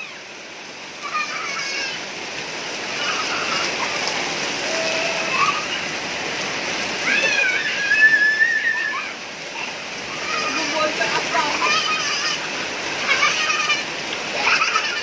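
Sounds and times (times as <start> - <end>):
rain pouring and splashing: 0.0 - 15.0
high-pitched cry: 4.7 - 5.8, 7.0 - 10.9, 11.6 - 15.0.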